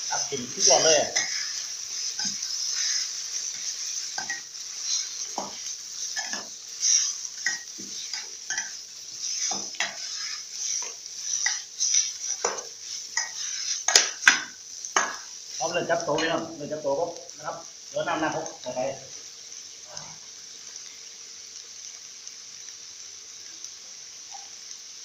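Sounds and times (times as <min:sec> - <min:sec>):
food sizzling: 0:00.0 - 0:25.0
metal spatula scraping pan: 0:00.6 - 0:05.6, 0:06.2 - 0:15.2.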